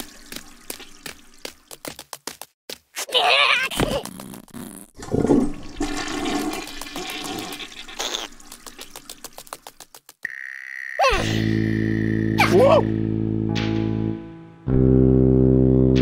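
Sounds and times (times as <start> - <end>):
water rushing and gurgling: 0.0 - 1.6.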